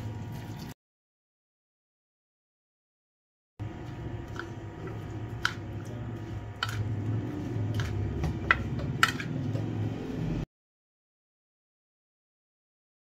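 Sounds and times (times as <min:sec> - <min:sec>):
spoon stirring wet batter: 0:03.6 - 0:09.9
steady low hum: 0:03.6 - 0:10.4.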